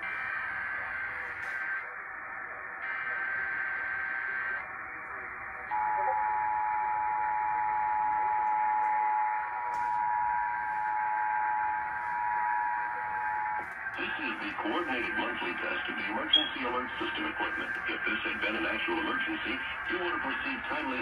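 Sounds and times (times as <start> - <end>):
radio hiss: 0.0 - 6.3, 9.5 - 21.0
alert data signal: 16.1 - 16.9
two-tone alert signal: 16.3 - 16.7.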